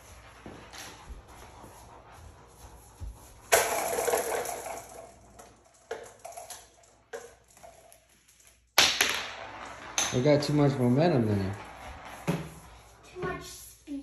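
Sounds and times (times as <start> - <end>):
marbles clattering: 3.5 - 11.8
marbles rolling on plastic track: 3.5 - 13.1.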